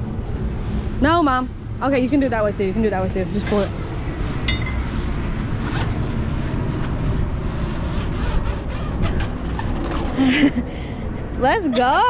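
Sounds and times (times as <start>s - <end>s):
steady low rumble: 0.0s - 11.7s
webbing strap sliding and rustling: 3.5s - 10.1s.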